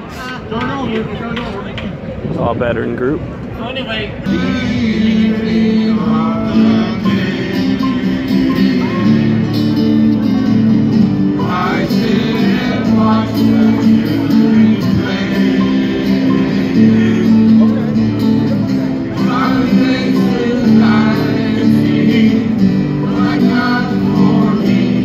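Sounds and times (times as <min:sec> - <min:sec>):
acoustic guitars playing: 0:04.1 - 0:25.0
man singing: 0:04.2 - 0:09.8, 0:11.4 - 0:25.0.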